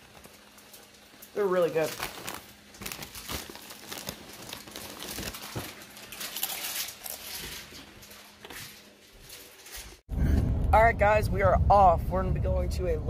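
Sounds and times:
chips crunching being chewed: 0.0s - 9.8s
chip bag rustling: 0.0s - 10.0s.

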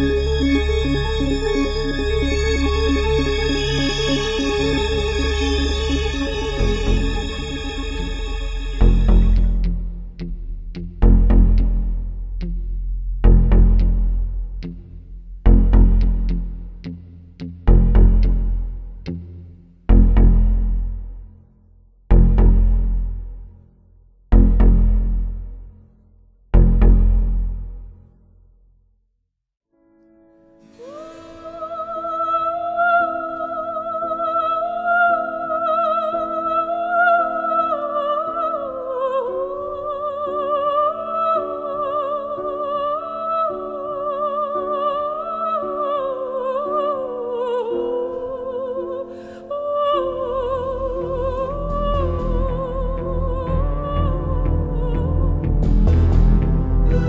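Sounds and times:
operatic voice singing: 0.0s - 9.6s, 30.8s - 57.0s
deep low musical layer: 0.0s - 21.4s, 22.1s - 23.6s, 24.3s - 25.7s, 50.2s - 57.0s.

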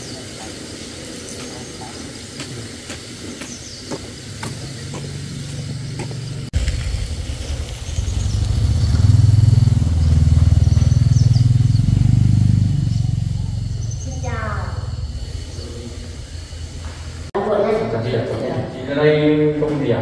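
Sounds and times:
small engine running: 7.9s - 17.0s.

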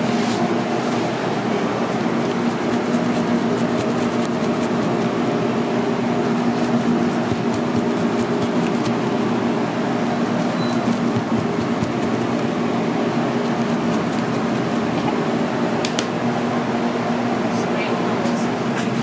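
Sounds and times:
mechanical hum: 0.0s - 19.0s.

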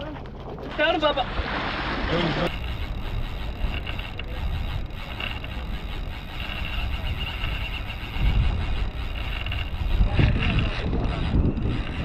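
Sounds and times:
wind buffeting microphone: 2.3s - 12.0s
faint high whir: 2.4s - 12.0s.

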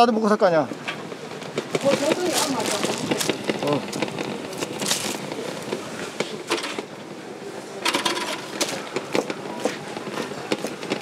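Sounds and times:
rustling: 1.4s - 5.6s.

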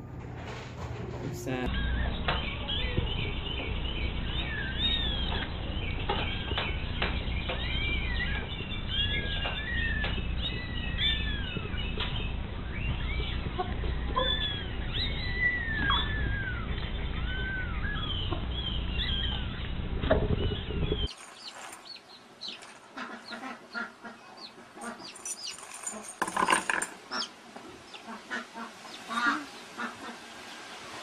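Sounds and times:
low rumble: 1.1s - 21.1s
baby chick peeping: 1.7s - 21.1s
high arching chirps of young animals: 1.7s - 25.6s.

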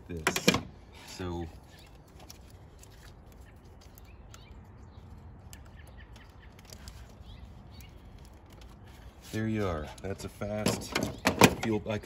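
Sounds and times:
bird chirps: 3.3s - 8.6s.

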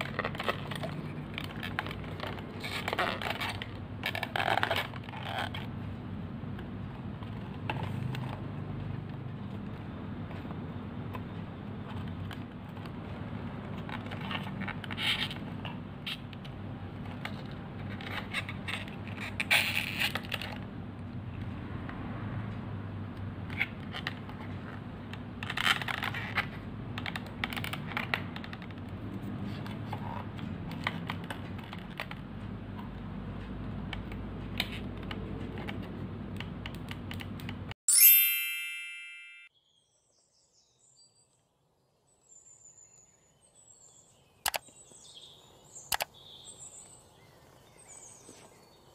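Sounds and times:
bright ringing chime: 37.9s - 39.5s.

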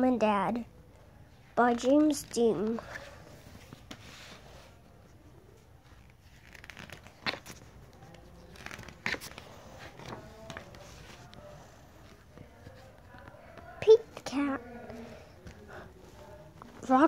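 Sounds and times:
paper rustling: 1.7s - 14.3s
page snaps: 6.4s - 7.6s.

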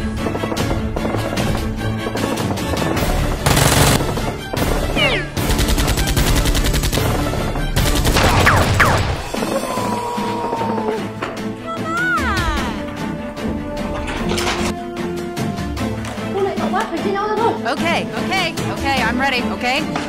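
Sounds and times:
background music: 0.0s - 20.0s
automatic gunfire: 2.2s - 9.6s.

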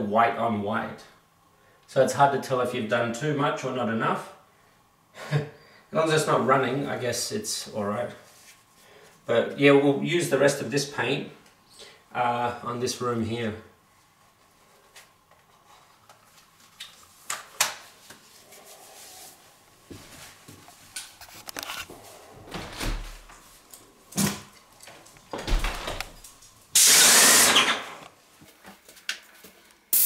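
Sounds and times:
spray gun hissing: 26.8s - 27.6s.

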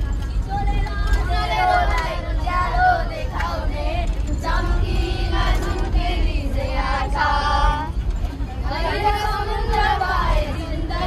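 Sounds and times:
low rumble: 0.0s - 11.0s
children singing: 8.6s - 11.0s.

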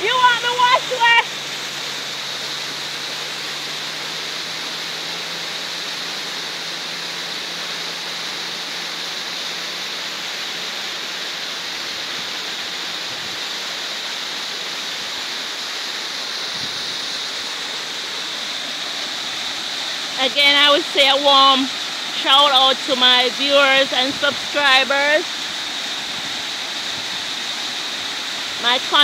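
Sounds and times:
waterfall splashing on rocks: 0.0s - 29.0s.

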